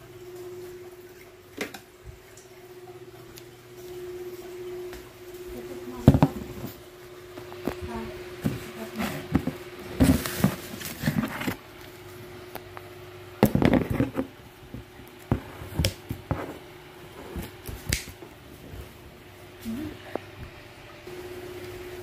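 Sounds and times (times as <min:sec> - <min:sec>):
cardboard and plastic scraping: 0:08.5 - 0:11.6, 0:13.5 - 0:14.3.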